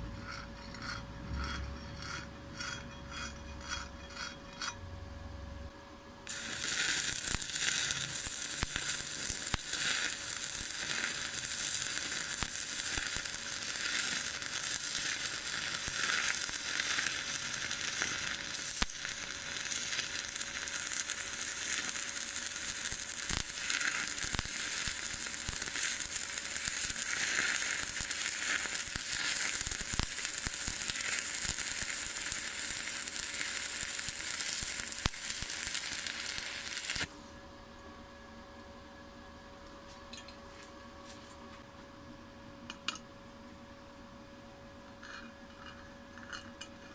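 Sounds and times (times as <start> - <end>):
arc welding crackle and sizzle: 0.0 - 37.4.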